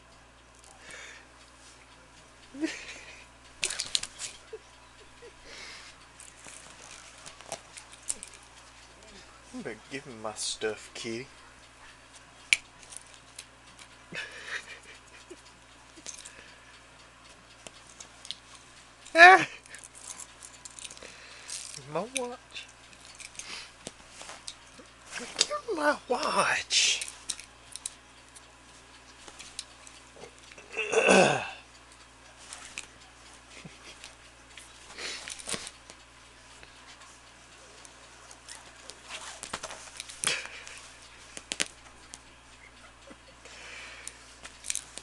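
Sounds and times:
metal watch chain clinking: 0:19.8 - 0:22.2.

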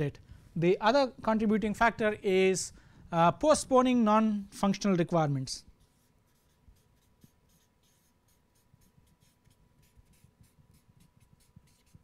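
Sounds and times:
marker pen squeaking on paper: 0:05.8 - 0:12.0.

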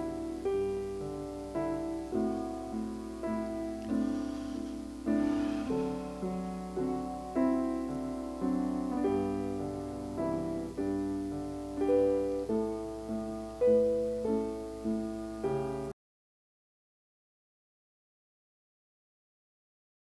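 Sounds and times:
piano playing a slow hymn: 0:00.0 - 0:16.0.

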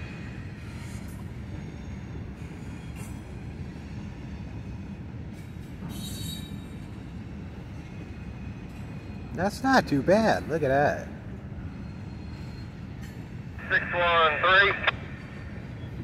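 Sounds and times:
faint wheel squeals: 0:00.0 - 0:09.3, 0:11.6 - 0:13.5
freight cars rumbling on rails: 0:00.0 - 0:16.0.

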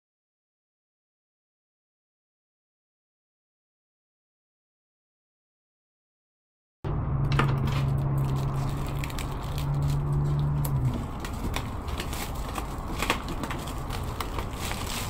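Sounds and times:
low hum: 0:06.9 - 0:15.0
plastic film crinkling: 0:07.6 - 0:15.0.

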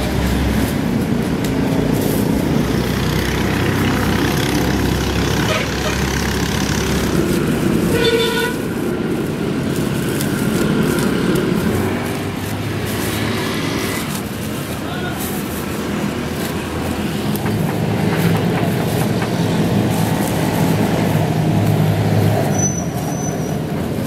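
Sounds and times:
short horn toot: 0:07.9 - 0:08.6.

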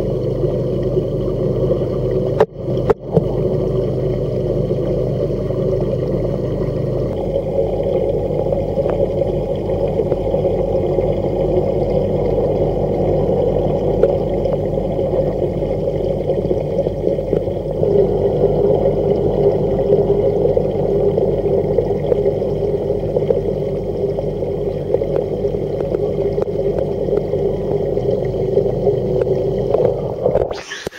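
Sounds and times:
pump hum: 0:00.0 - 0:30.9
water gurgling and bubbling: 0:00.0 - 0:30.9.

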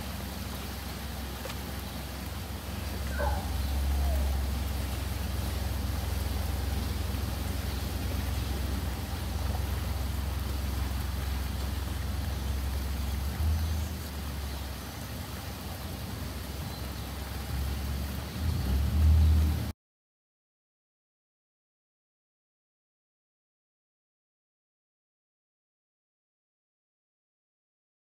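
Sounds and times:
rain hissing: 0:00.0 - 0:19.7.

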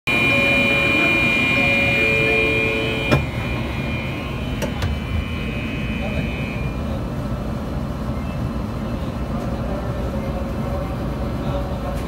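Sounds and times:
steady tones: 0:00.1 - 0:07.6.

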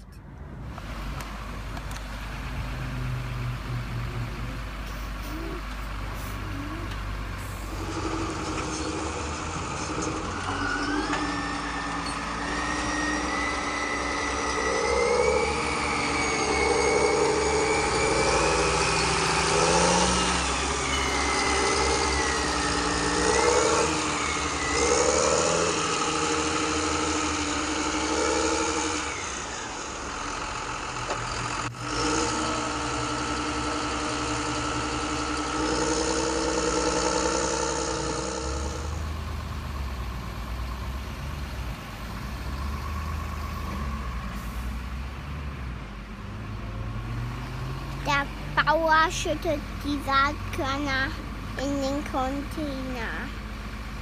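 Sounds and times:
tractor engine revving: 0:00.0 - 0:54.0
high whine: 0:03.6 - 0:40.6.

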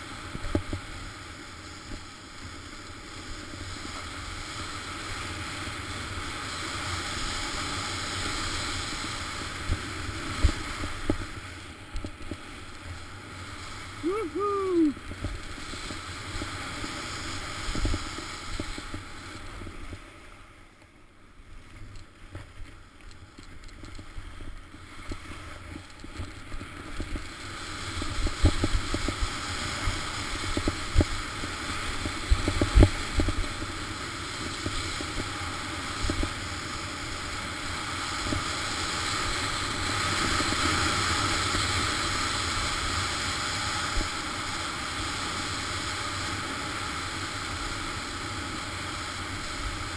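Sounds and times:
skis rushing over snow: 0:00.0 - 0:20.6.

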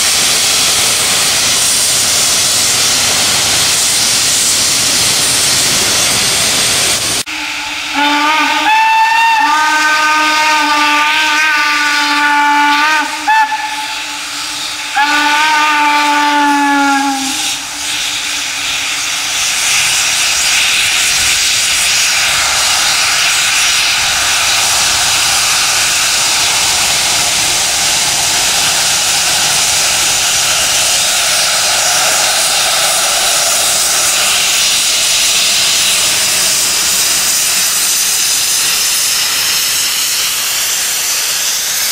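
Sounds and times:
rushing hiss of steam: 0:00.0 - 0:41.9
steam locomotive whistle: 0:07.2 - 0:27.0.

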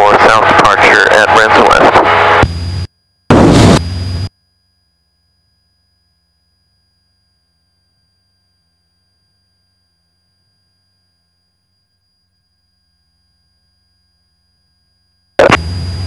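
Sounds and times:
loud burst of radio noise: 0:00.0 - 0:04.3, 0:15.4 - 0:16.0
faint high-pitched tone: 0:04.3 - 0:16.0.

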